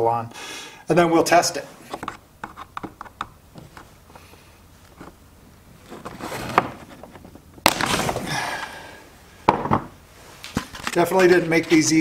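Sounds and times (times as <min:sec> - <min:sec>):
plastic cracking and rattling: 0:05.9 - 0:08.2.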